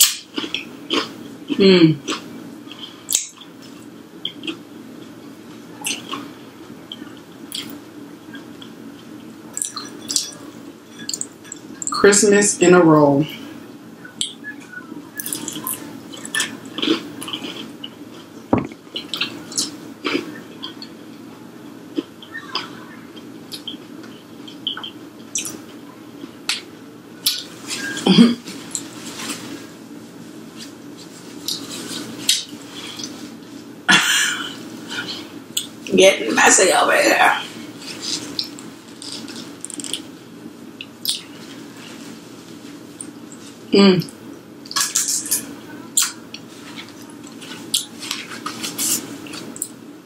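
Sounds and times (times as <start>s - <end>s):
person chewing food: 0.0s - 11.9s, 15.2s - 21.2s, 21.9s - 29.7s, 30.6s - 33.6s, 37.7s - 40.1s, 44.7s - 49.8s
mouth clicks and smacks: 6.9s - 7.8s, 11.0s - 12.0s, 14.0s - 17.9s, 24.5s - 25.6s, 38.2s - 40.1s, 40.8s - 41.3s.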